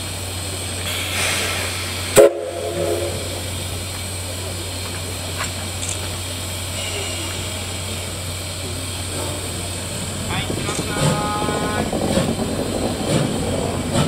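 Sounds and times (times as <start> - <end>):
steam whistle blast: 2.1 - 3.3.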